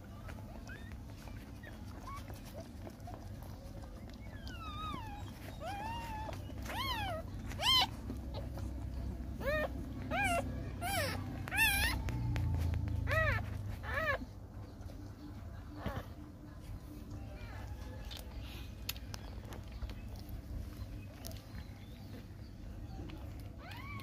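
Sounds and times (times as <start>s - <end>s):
puppies whimpering: 0.0s - 16.8s, 17.4s - 24.0s.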